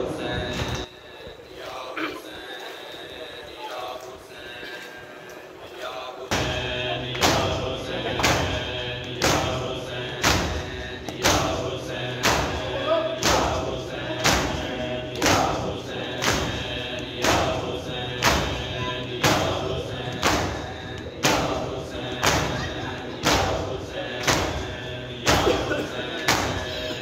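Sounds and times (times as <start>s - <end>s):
men chanting: 0.0s - 27.0s
hands slapping chests: 8.2s - 8.6s, 14.2s - 16.6s, 22.2s - 22.6s, 23.2s - 24.7s.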